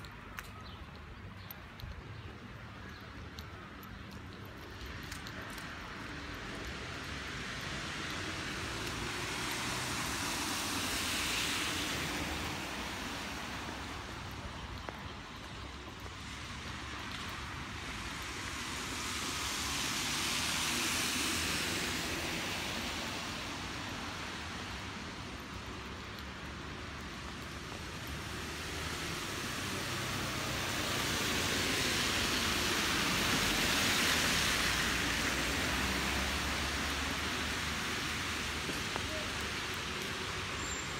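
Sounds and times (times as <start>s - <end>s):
rain: 3.0s - 40.9s
car tyres hissing on wet road: 7.3s - 14.3s, 16.2s - 25.9s, 26.5s - 40.9s.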